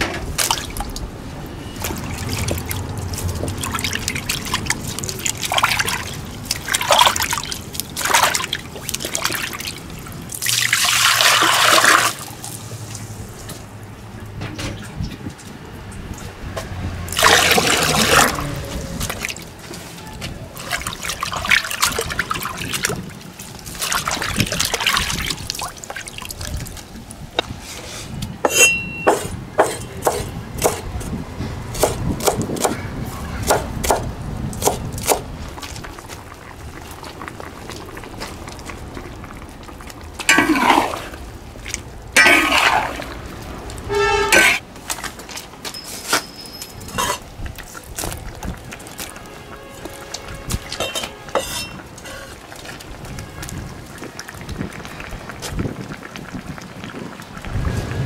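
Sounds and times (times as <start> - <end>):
water pouring into a basin: 1.8 - 13.1, 17.1 - 19.5, 20.5 - 26.9, 36.4 - 43.4
metal ladle scraping in wok: 27.6 - 29.8, 42.2 - 43.2, 43.9 - 44.6, 45.8 - 47.3, 50.7 - 52.4
cleaver chopping on wooden board: 28.5 - 30.8.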